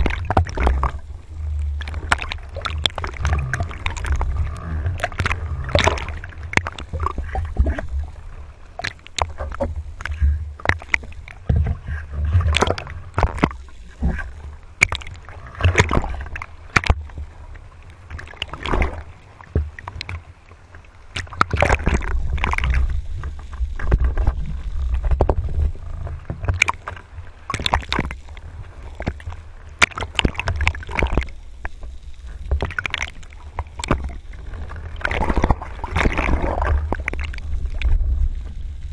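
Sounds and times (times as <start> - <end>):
low rumble: 0.0 - 18.1, 21.8 - 27.4, 33.4 - 38.9
sea water splashing: 0.0 - 38.9.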